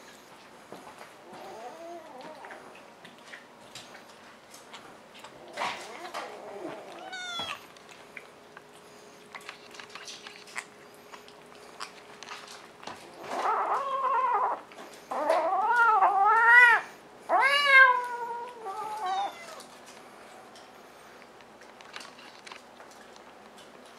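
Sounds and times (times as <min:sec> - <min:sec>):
cat meowing: 0:05.8 - 0:07.6, 0:13.3 - 0:19.7.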